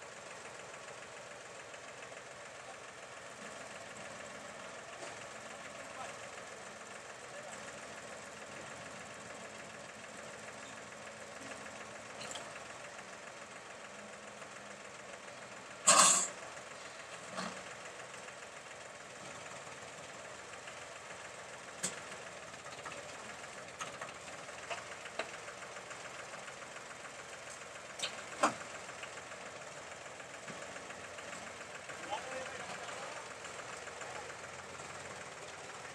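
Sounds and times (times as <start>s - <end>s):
tractor diesel engine idling: 0.0s - 35.9s.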